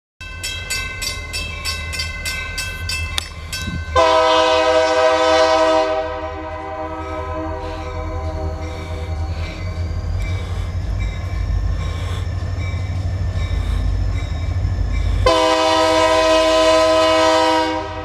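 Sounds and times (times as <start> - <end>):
bell ringing: 0.2 - 4.0
locomotive horn blast: 3.9 - 9.2, 15.2 - 18.0.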